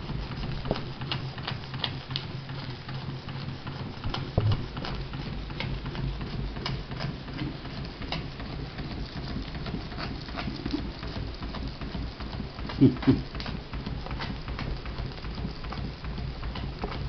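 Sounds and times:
steam engine clicking and spitting: 0.0 - 17.0
low steady hum: 3.6 - 17.0
loud thump: 4.4 - 4.6.

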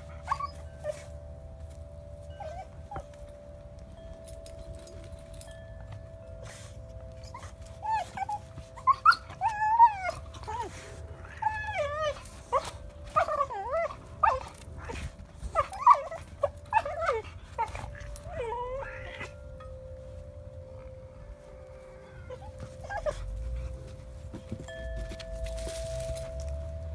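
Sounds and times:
dog whining and yipping: 0.0 - 1.2, 2.2 - 3.4, 6.4 - 19.6, 21.6 - 25.4.

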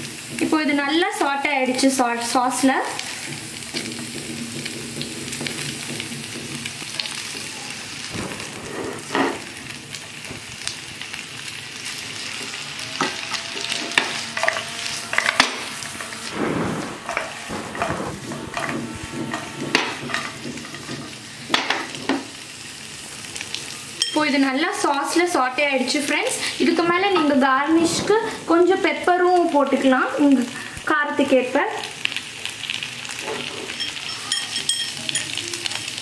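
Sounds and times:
sauce sizzling in a pan: 0.0 - 36.0
spatula scraping a pan: 8.3 - 9.6, 12.3 - 22.3.

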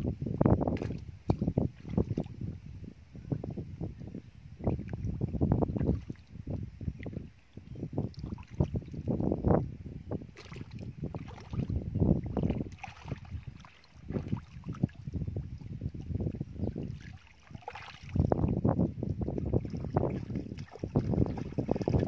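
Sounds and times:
muddy water splashing: 0.7 - 2.4, 5.6 - 6.4, 8.0 - 9.2, 10.4 - 22.0
wading steps in water: 0.7 - 2.4, 10.4 - 22.0.

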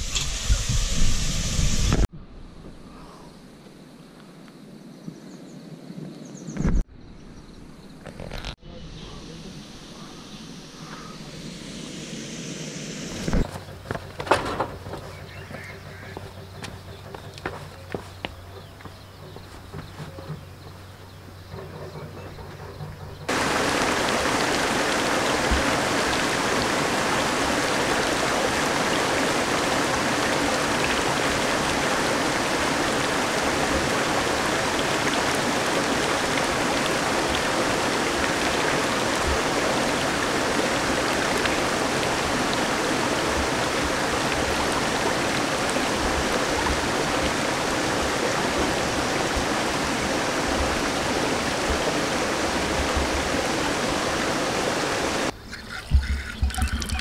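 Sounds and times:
stream running over rocks: 13.0 - 57.0.

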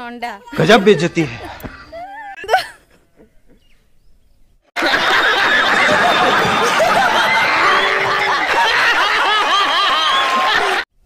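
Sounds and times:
crowd laughing loudly: 0.6 - 1.6, 4.8 - 10.9
people clapping: 4.8 - 10.9.

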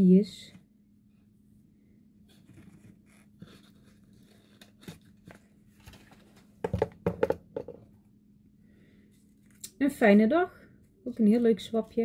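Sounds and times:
paper packaging rustling: 2.5 - 6.6
knocks and clatter: 6.6 - 7.8.

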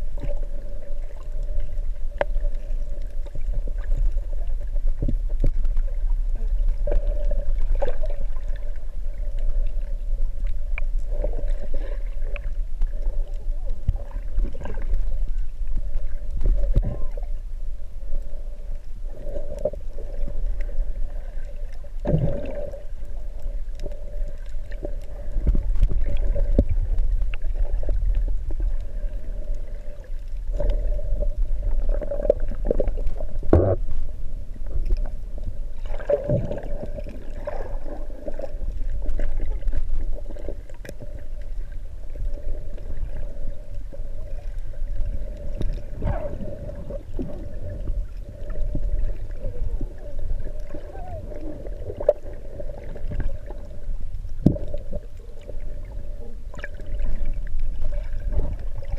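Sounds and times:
underwater water rumble: 0.0 - 58.9
bubbles gurgling: 11.0 - 17.4, 19.2 - 23.6, 35.8 - 41.2, 42.1 - 53.8, 54.4 - 58.9.

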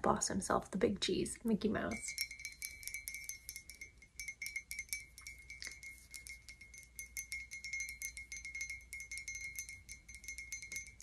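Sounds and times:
mugs ringing: 2.1 - 11.0.

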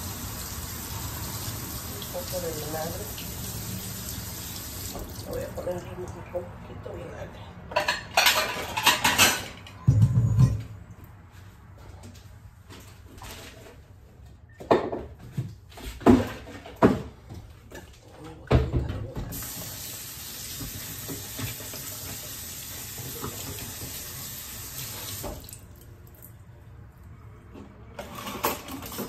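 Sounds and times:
kitchen tap running: 0.0 - 5.6, 19.3 - 25.8.

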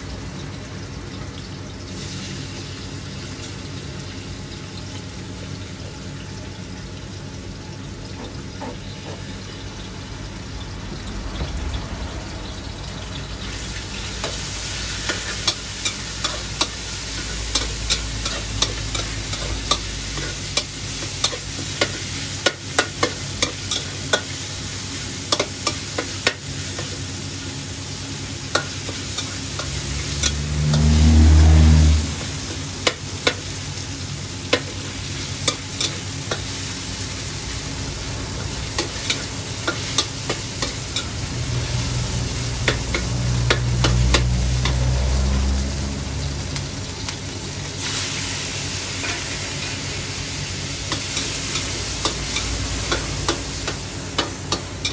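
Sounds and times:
chicken sizzling in oil: 0.0 - 54.9
low engine rumble: 9.4 - 21.6, 26.8 - 33.9, 36.2 - 47.7
spatula scraping wok: 13.6 - 46.0, 47.8 - 54.9.

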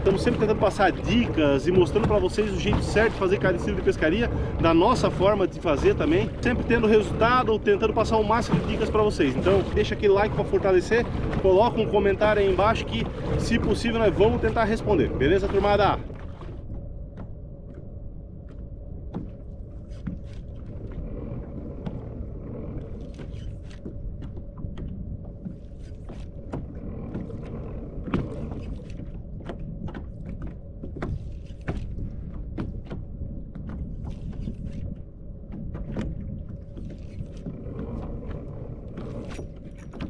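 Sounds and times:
wind and water rumble: 0.0 - 40.0
clicks and knocks from boat gear: 23.1 - 40.0.

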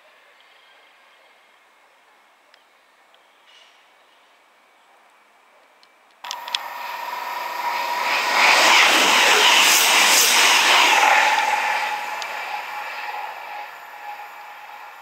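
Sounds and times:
train passing at speed: 6.2 - 15.0.

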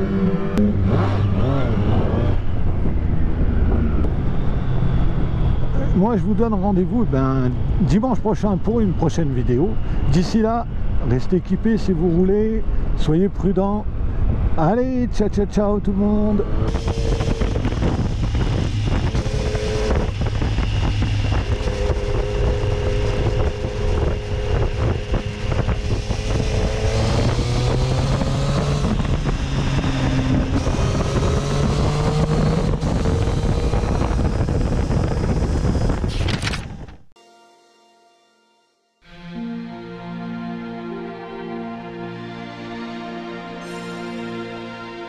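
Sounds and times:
wind noise on microphone: 0.0 - 37.1
motorcycle engine running: 16.4 - 36.1.

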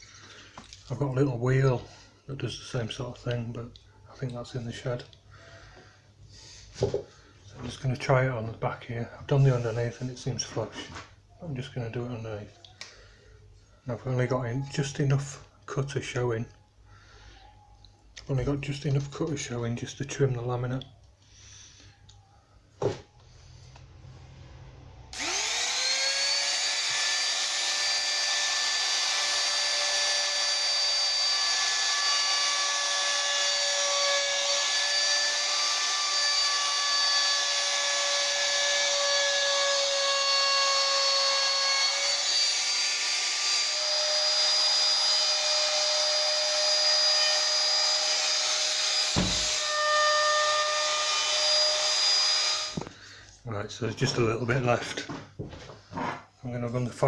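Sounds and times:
trim router whining: 25.1 - 52.9.

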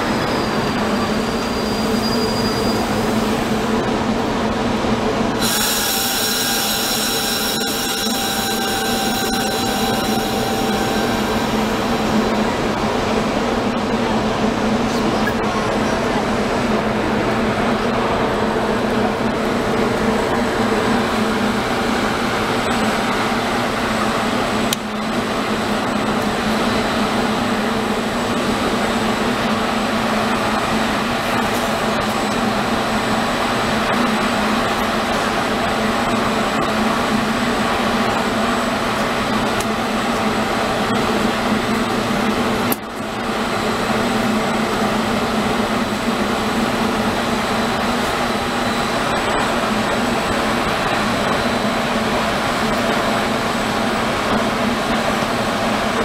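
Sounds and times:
train equipment humming: 0.0 - 56.0
faint high whine: 5.4 - 12.8.

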